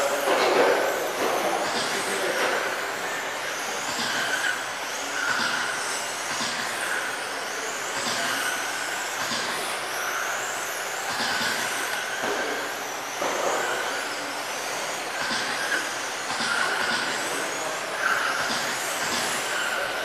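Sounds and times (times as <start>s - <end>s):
rc car motor and gear whine: 0.0s - 20.0s.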